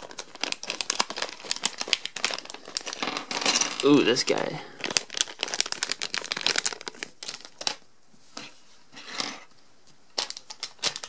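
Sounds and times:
plastic bag crinkling: 0.0s - 7.8s, 10.2s - 11.0s.

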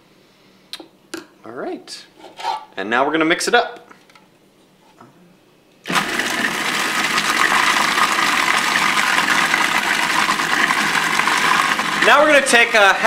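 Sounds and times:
food processor motor running: 5.9s - 13.0s.

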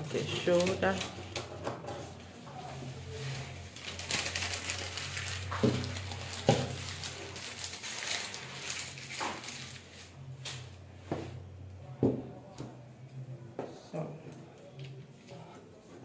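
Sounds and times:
paper crinkling and rustling: 0.0s - 10.7s.

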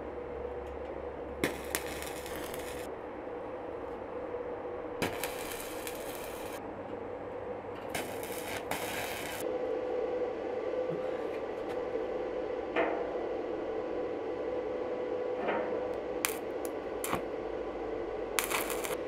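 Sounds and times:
steady hum: 0.0s - 19.0s
arc welding crackle: 1.4s - 2.9s, 5.0s - 6.6s, 7.8s - 9.4s, 16.2s - 17.4s, 18.4s - 19.0s.

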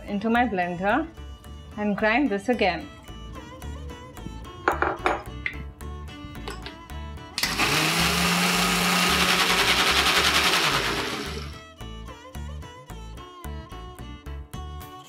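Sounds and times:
mixer grinder motor whirring: 7.4s - 11.6s.

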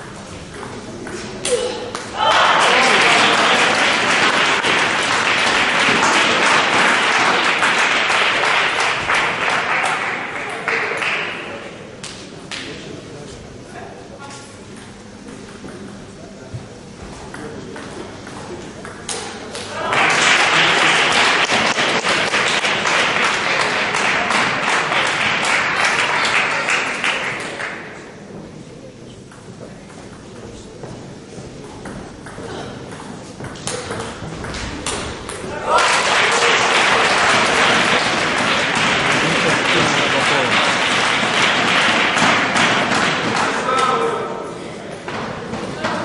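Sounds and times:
audience applauding: 2.2s - 11.6s, 19.8s - 27.8s, 35.7s - 43.8s.

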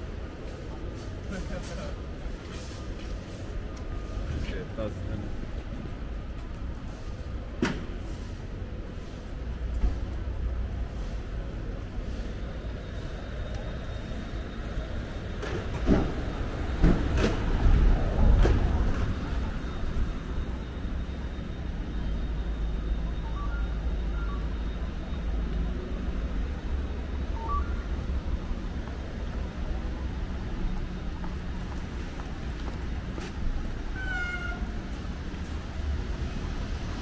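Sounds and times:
distant city traffic rumble: 0.0s - 37.0s
high meow-like cry: 34.0s - 34.7s.

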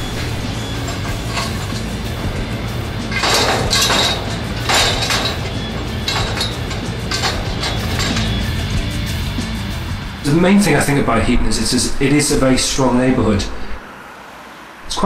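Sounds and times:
low steady bass music: 0.0s - 10.6s.

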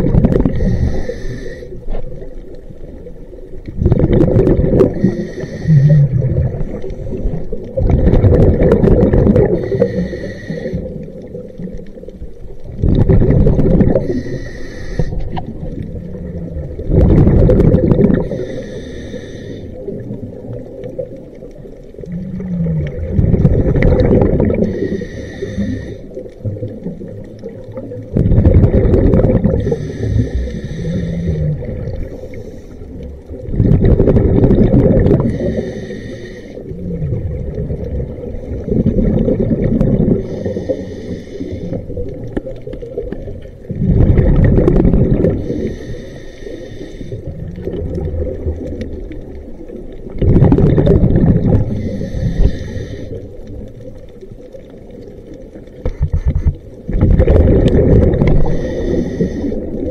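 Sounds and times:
exhaled bubbles rushing underwater: 0.0s - 59.9s
regulator hiss: 0.5s - 1.9s, 4.9s - 6.1s, 9.6s - 11.0s, 14.0s - 15.4s, 18.3s - 19.9s, 24.6s - 26.2s, 29.6s - 33.0s, 35.2s - 36.6s, 40.2s - 41.9s, 45.4s - 47.3s, 51.7s - 53.4s, 58.4s - 59.8s.

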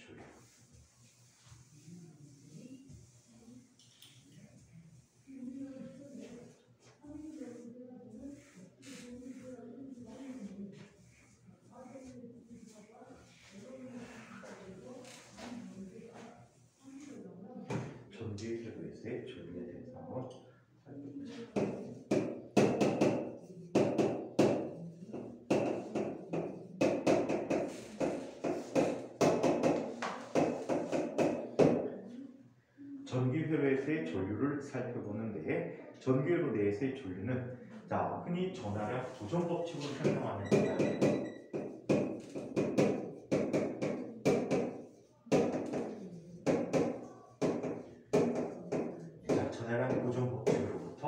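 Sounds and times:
chalk tapping on board: 21.5s - 31.8s, 40.0s - 50.8s.

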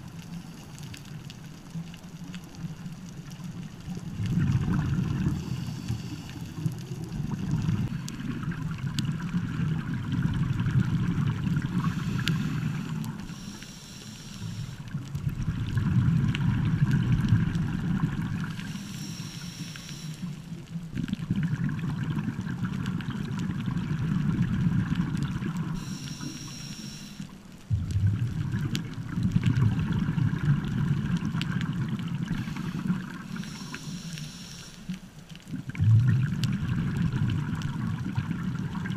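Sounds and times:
underwater exhaled bubbles gurgling: 0.0s - 38.9s
regulator inhalation hiss: 5.4s - 6.7s, 11.8s - 14.9s, 18.6s - 20.5s, 25.8s - 27.4s, 32.3s - 35.0s.

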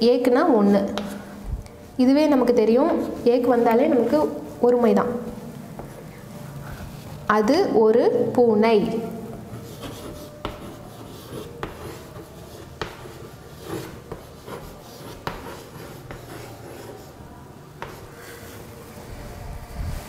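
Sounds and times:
chalk scratching on chalkboard: 0.4s - 7.3s, 9.3s - 19.0s
chalk tapping board: 0.7s - 1.3s, 9.3s - 18.6s.

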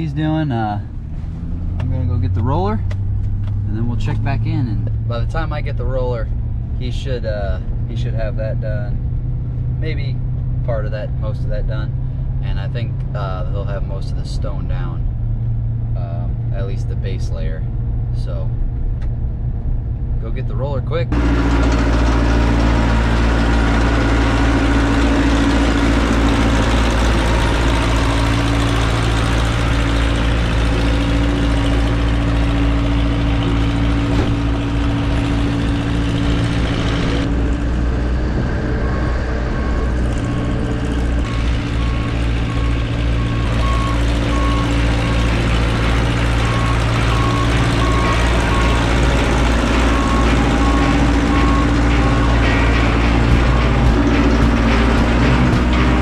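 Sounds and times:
diesel roller engine running: 21.1s - 56.0s
backup alarm beeping: 38.8s - 55.0s.

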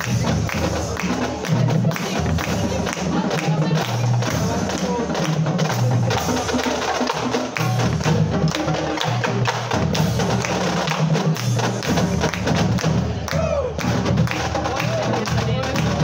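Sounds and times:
pitched bass drums: 0.0s - 16.0s
snare drums: 0.0s - 16.0s.

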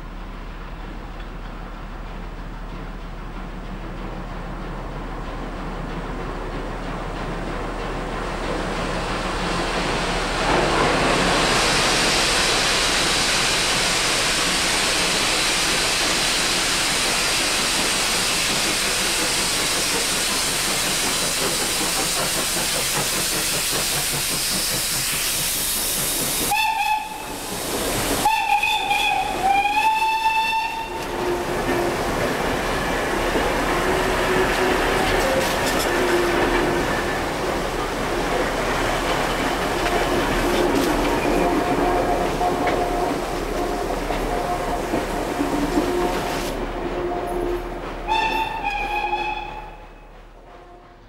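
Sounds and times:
steam locomotive hissing: 1.6s - 51.0s
steam whistle blasts: 26.5s - 27.4s, 28.2s - 31.6s, 40.6s - 50.0s.

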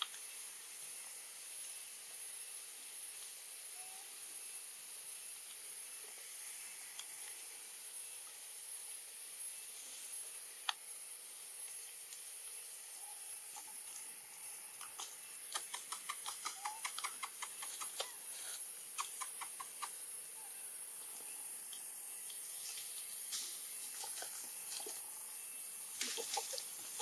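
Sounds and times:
high-pitched hiss: 0.0s - 27.0s
rustles: 9.4s - 27.0s
sharp clicks: 14.8s - 18.1s.

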